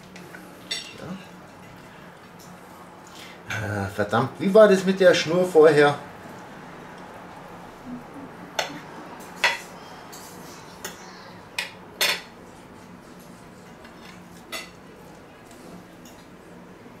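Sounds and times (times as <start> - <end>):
cutlery clinking on plate: 11.6 - 12.3, 13.8 - 14.8.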